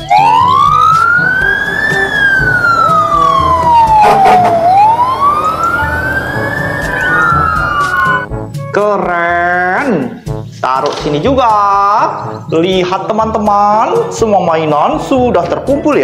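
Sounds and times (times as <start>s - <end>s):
fire engine siren wailing: 0.0s - 8.3s.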